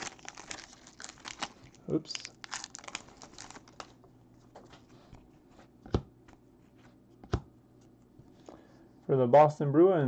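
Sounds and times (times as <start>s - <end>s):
foil wrapper crinkling: 0.0s - 4.0s.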